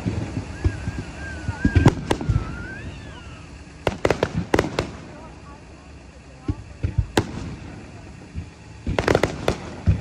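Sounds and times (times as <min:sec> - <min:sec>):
wavering whistle: 0:00.0 - 0:03.8
fireworks bangs: 0:00.0 - 0:10.0.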